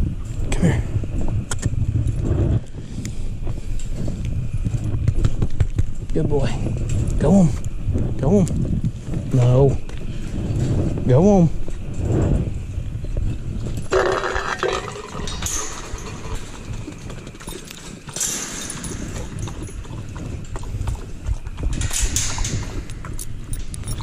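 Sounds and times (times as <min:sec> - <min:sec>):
wire kennel rattling: 0:13.7 - 0:24.0
dog at metal bowl clicking: 0:14.4 - 0:24.0.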